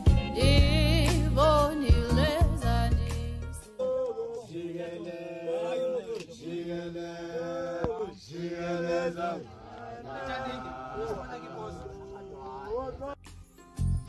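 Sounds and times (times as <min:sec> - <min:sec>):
voices chanting in harmony: 0:03.7 - 0:13.2.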